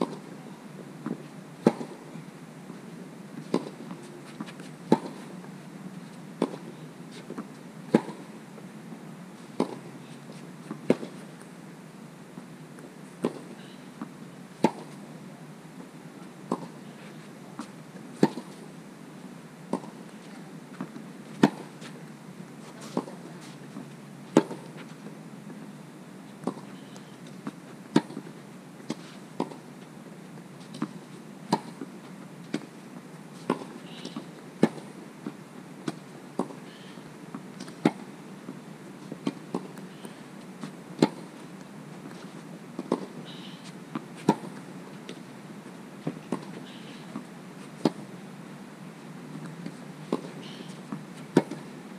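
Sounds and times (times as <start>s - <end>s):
tennis ball bounces: 1.0s - 2.0s, 20.8s - 21.9s, 33.4s - 34.9s, 35.9s - 36.6s, 37.6s - 38.0s, 40.6s - 41.4s, 43.9s - 45.2s, 46.0s - 48.1s, 49.4s - 51.7s
tennis racquets hitting balls: 1.0s - 2.1s, 3.4s - 5.3s, 6.4s - 8.3s, 9.6s - 9.9s, 10.6s - 11.3s, 13.2s - 14.0s, 14.6s - 15.0s, 16.5s - 18.7s, 19.7s - 22.0s, 22.6s - 23.6s, 24.3s - 24.9s, 26.4s - 29.6s, 30.6s - 32.7s, 33.4s - 35.0s, 35.8s - 36.6s, 37.3s - 38.0s, 39.0s - 45.2s, 46.0s - 48.1s, 49.4s - 51.7s.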